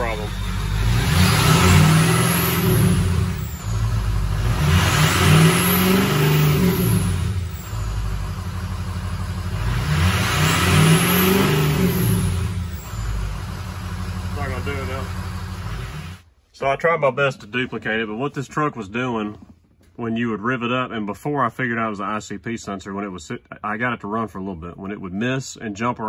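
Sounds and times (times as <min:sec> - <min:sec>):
diesel engine revving: 0:00.0 - 0:16.3.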